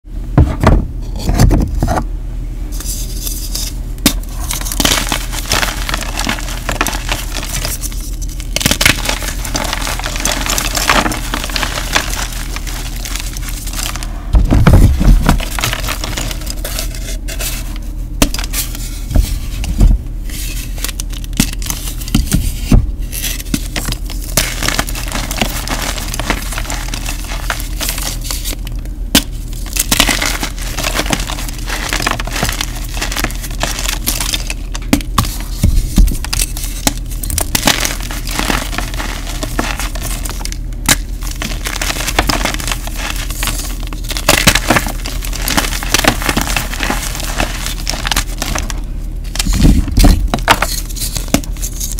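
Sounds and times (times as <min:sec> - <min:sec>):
chalk crunching and crumbling: 0:02.8 - 0:51.9
heavy deep crunch: 0:08.4 - 0:16.6.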